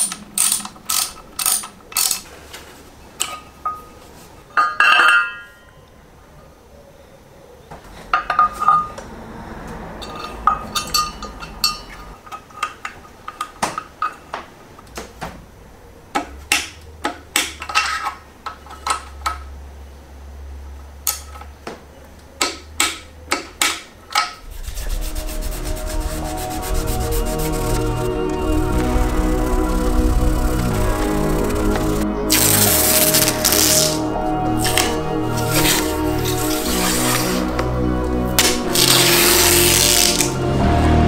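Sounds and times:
music: 24.4s - 41.0s.

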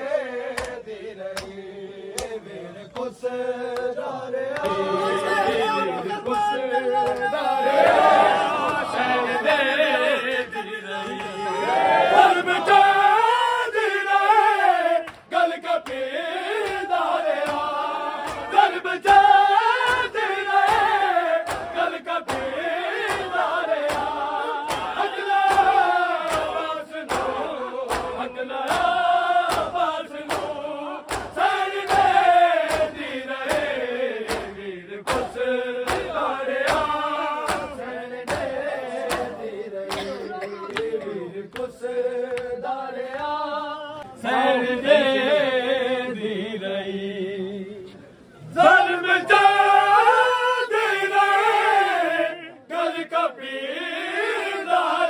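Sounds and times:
men chanting in chorus: 0.0s - 55.0s
rhythmic chest beating strikes: 15.1s - 40.2s.

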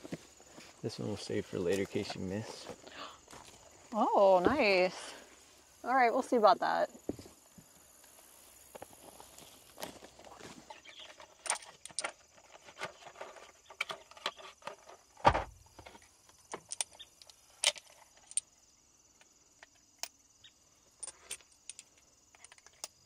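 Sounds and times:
cartridges clicking and rattling: 21.0s - 23.0s.

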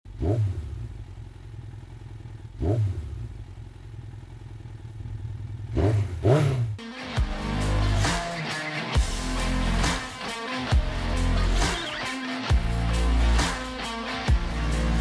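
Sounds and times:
motorcycle engine idling: 0.1s - 8.1s
motorcycle engine revving: 0.1s - 15.0s.

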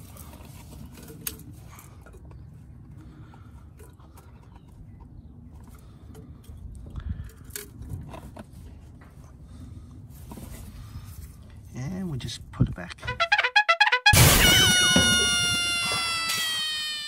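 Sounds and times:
thumps: 14.2s - 16.6s.

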